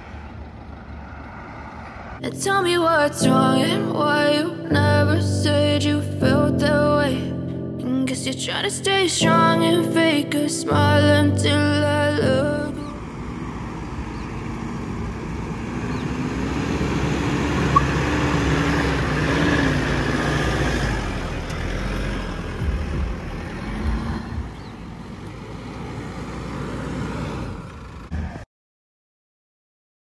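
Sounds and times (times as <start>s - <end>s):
diesel engine under load: 0.0s - 2.3s, 11.5s - 28.4s.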